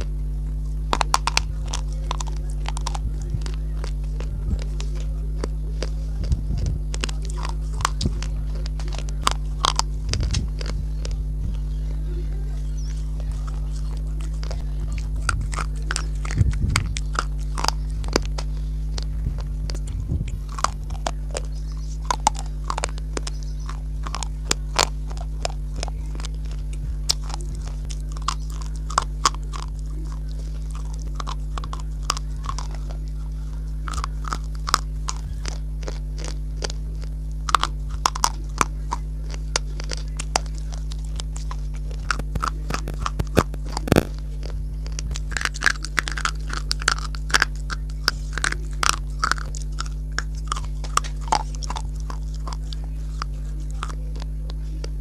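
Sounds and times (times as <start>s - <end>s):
crisp crunches of chewing: 0.0s - 55.0s
steady low hum: 0.0s - 55.0s.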